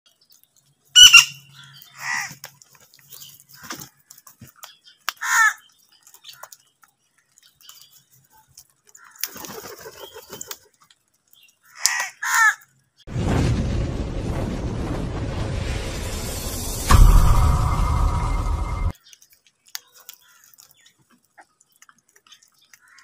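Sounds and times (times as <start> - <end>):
crows cawing: 1.0 - 2.4, 5.1 - 5.6, 8.9 - 9.6, 11.6 - 12.7.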